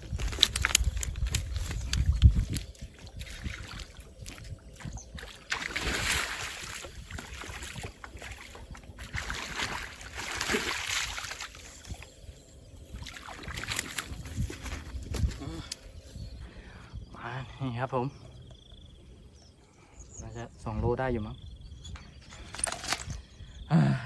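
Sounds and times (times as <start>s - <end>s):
water splashing around boat: 2.8s - 12.0s.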